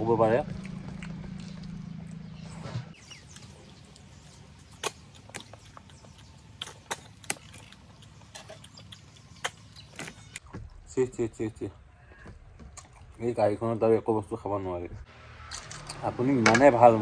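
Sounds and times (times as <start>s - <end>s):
low hum: 0.0s - 6.6s.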